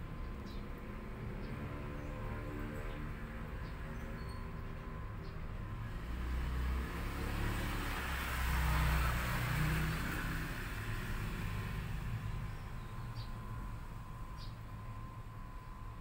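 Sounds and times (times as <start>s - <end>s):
vehicle engine passing by: 5.0s - 15.1s.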